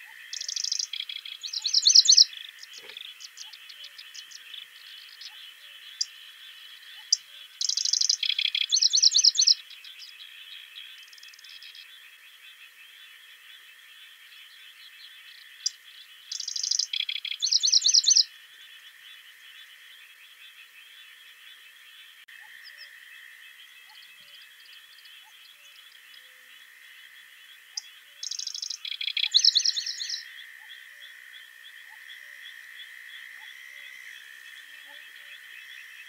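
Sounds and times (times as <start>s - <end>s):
songbird singing trills: 0.0s - 13.0s, 14.3s - 18.4s, 27.5s - 32.4s
distant birds chorus: 0.0s - 36.0s.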